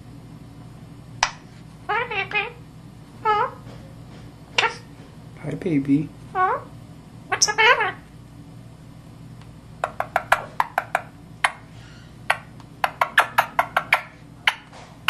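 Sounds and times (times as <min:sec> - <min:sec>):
parakeet clicking: 0:09.8 - 0:11.6, 0:12.3 - 0:14.7.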